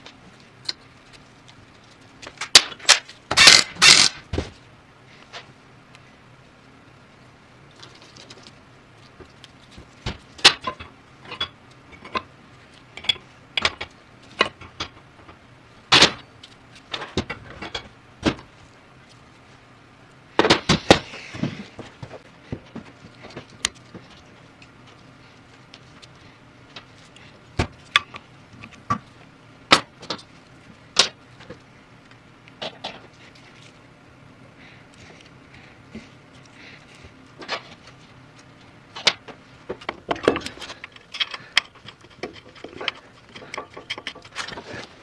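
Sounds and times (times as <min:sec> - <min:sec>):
metal parts clicking and clinking: 0:02.4 - 0:04.2, 0:40.3 - 0:44.7.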